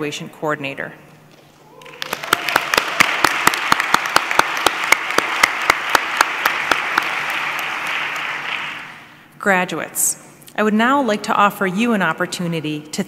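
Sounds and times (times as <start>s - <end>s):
close hand claps: 1.8s - 9.0s
audience applauding: 1.8s - 9.1s.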